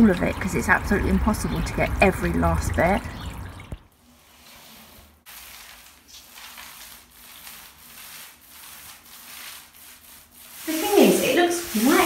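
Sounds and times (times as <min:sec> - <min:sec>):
paint roller rubbing on wall: 0:04.0 - 0:12.0.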